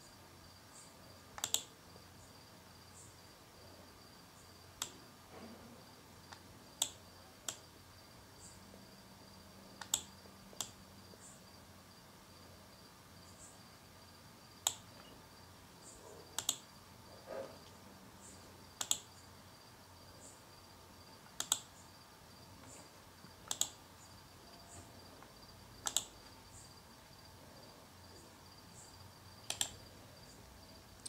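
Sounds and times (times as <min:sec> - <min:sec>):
computer mouse clicks: 0:01.4 - 0:01.8, 0:04.8 - 0:05.0, 0:06.3 - 0:07.7, 0:09.8 - 0:10.8, 0:14.6 - 0:15.1, 0:16.4 - 0:16.7, 0:18.8 - 0:19.1, 0:21.2 - 0:21.7, 0:23.4 - 0:23.8, 0:25.2 - 0:26.3, 0:29.4 - 0:29.8
faint high chirps: 0:14.8 - 0:16.6.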